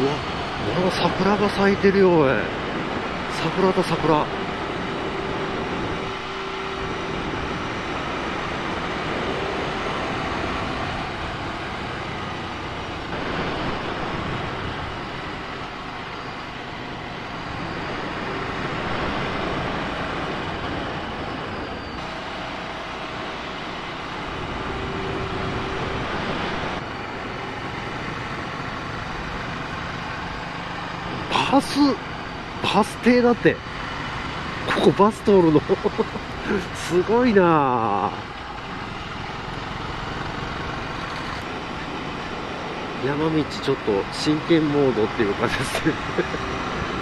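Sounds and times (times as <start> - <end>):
wind rush on microphone: 0.0 - 47.0
motorcycle engine running: 33.5 - 43.4.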